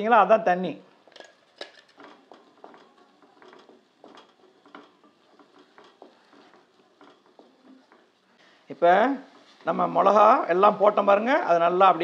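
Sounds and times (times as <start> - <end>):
spatula scraping pan: 1.0 - 10.2
spatula tapping pan: 1.1 - 8.4.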